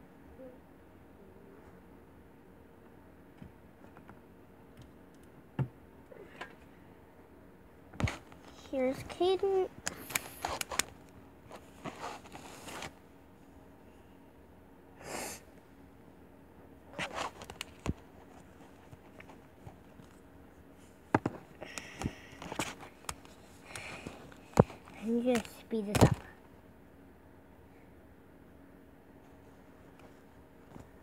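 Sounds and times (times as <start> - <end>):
fabric rustling: 10.0 - 13.0.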